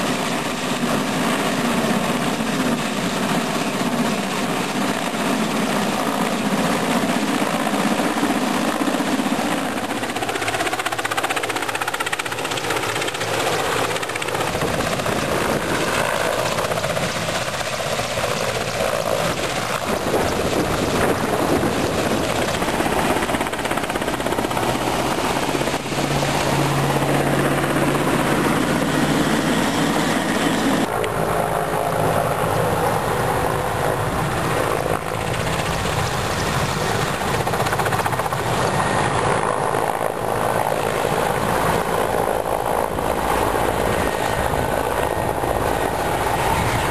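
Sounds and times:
helicopter rotor chop: 0.0 - 46.9.

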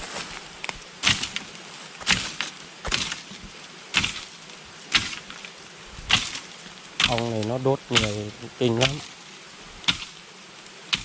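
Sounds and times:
sharp strikes on wood: 2.0 - 3.2, 3.9 - 4.3, 4.9 - 5.3, 6.1 - 6.4, 7.0 - 9.1, 9.9 - 10.1.

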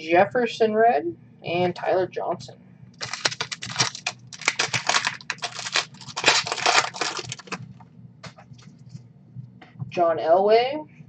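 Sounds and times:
foil wrapper crinkling and tearing: 3.0 - 7.6.

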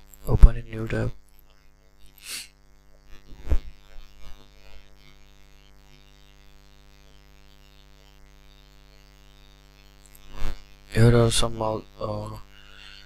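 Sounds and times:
low electrical hum: 0.0 - 13.0
breath noises: 2.2 - 2.5, 12.5 - 13.0.

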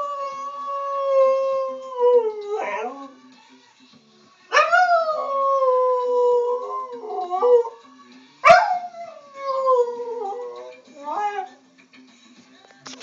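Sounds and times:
dog howling: 0.0 - 3.2, 4.5 - 7.8, 8.4 - 11.6.

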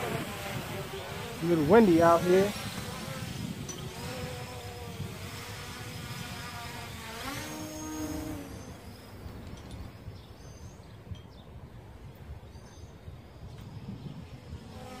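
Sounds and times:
drone propellers buzzing: 0.0 - 10.2, 13.5 - 15.0
wind rumble on microphone: 0.0 - 15.0.

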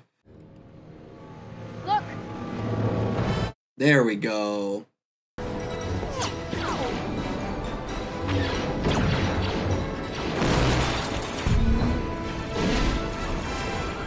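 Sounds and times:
orchestral battle score: 5.7 - 14.0.

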